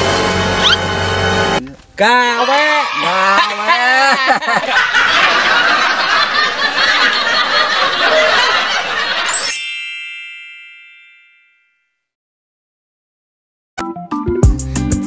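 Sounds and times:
men laughing: 2.9s - 9.4s
bright chime: 9.3s - 12.0s.

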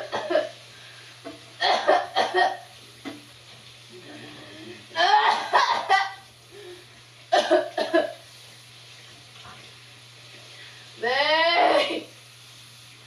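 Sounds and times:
woman coughing hard: 0.0s - 0.5s, 1.6s - 2.6s, 5.0s - 6.2s, 7.3s - 8.2s.

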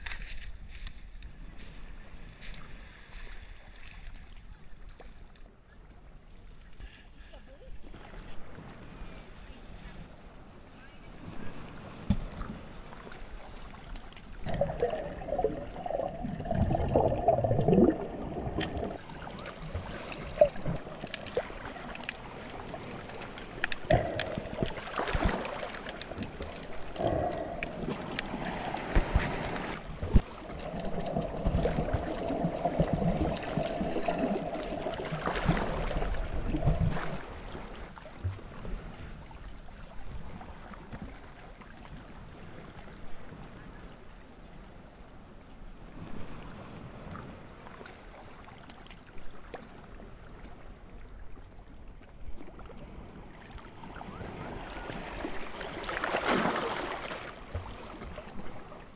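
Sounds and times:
sea water sloshing and gurgling: 6.4s - 43.9s, 45.4s - 58.9s
water splashes: 11.0s - 43.5s, 46.0s - 58.9s.

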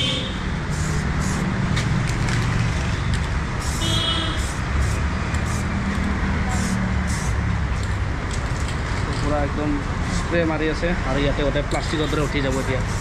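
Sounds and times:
aerosol spray can hissing: 0.6s - 2.0s, 3.6s - 7.6s, 11.9s - 13.0s.

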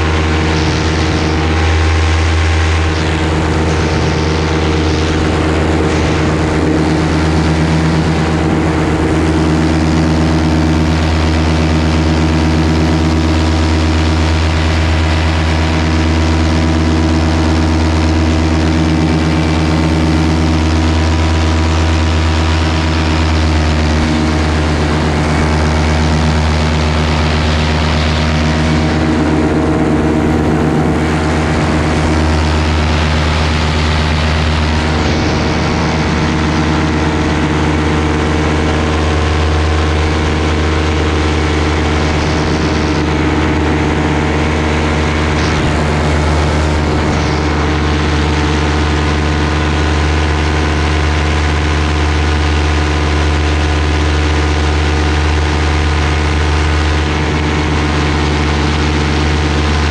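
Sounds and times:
wind rushing: 0.0s - 11.2s, 24.0s - 39.0s
paramotor engine droning: 0.0s - 59.9s.

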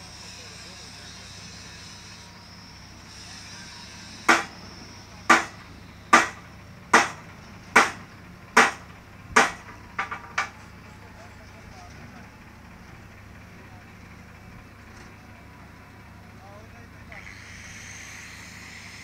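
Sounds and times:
hammer striking metal: 4.3s - 4.6s, 5.3s - 7.2s, 7.8s - 10.5s.

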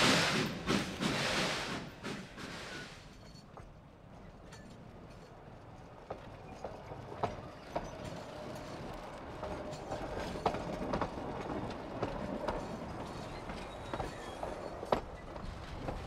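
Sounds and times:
train cars rolling: 0.0s - 16.0s
faint wheel squeal: 13.1s - 15.3s.

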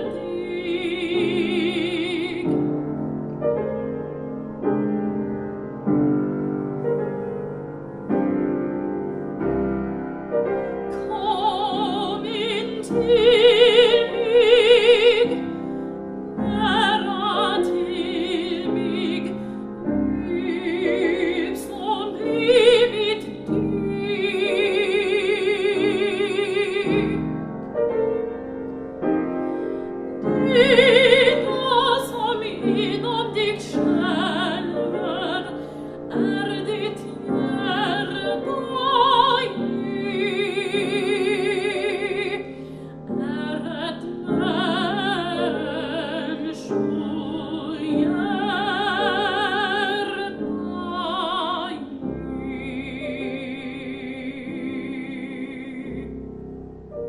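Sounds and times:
soprano singing operatically: 0.0s - 2.8s, 10.6s - 27.3s, 30.2s - 56.1s
piano accompaniment: 0.0s - 57.0s.

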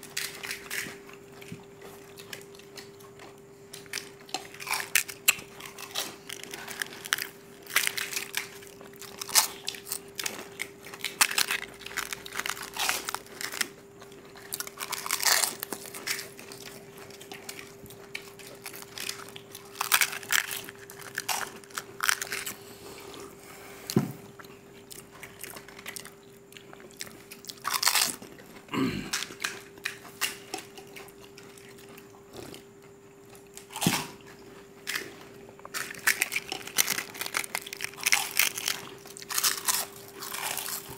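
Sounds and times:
people crunching crisp snacks: 0.0s - 32.7s, 33.3s - 40.9s
faint steady hum: 0.0s - 40.9s.

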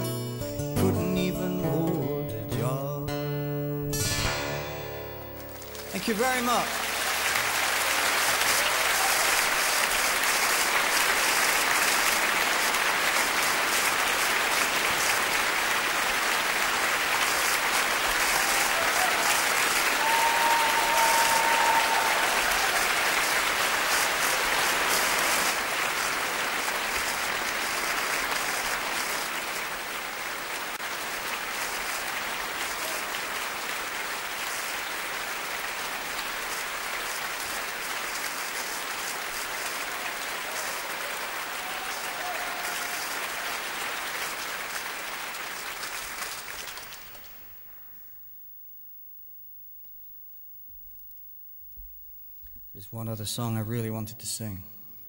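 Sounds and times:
large audience applauding: 5.4s - 47.9s.

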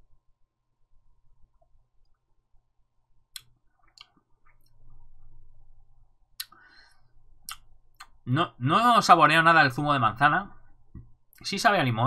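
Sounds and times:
mouth clicks and lip smacks: 3.3s - 5.0s, 6.4s - 6.6s, 7.4s - 8.2s.

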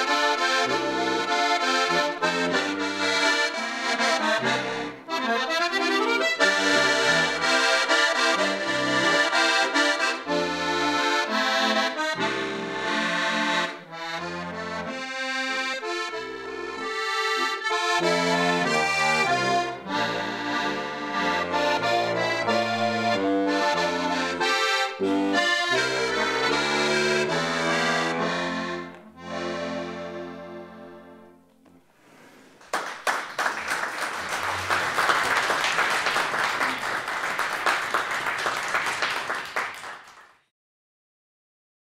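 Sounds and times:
button accordion folk tune: 0.0s - 32.4s.

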